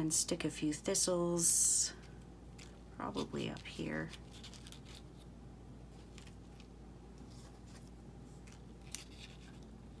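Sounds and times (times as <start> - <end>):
steady low hum: 0.0 - 10.0
paper pieces rustling: 2.6 - 5.3, 6.0 - 10.0.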